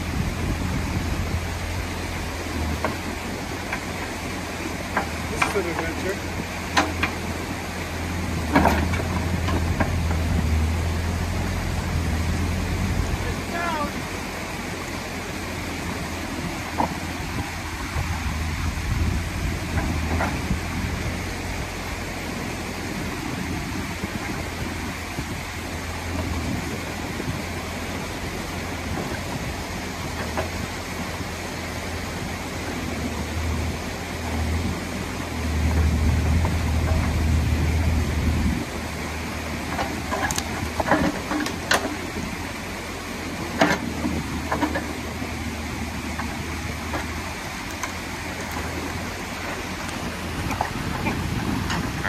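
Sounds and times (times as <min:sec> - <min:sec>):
excavator diesel engine running: 0:00.0 - 0:52.0
water pouring through dam: 0:00.0 - 0:52.0.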